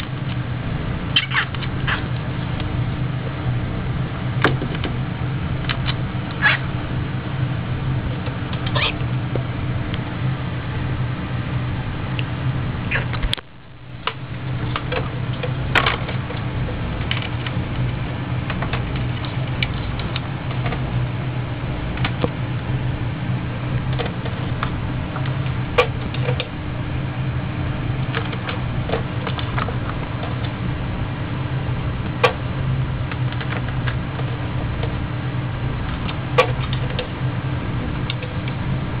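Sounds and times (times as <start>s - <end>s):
steady low hum: 0.0s - 39.0s.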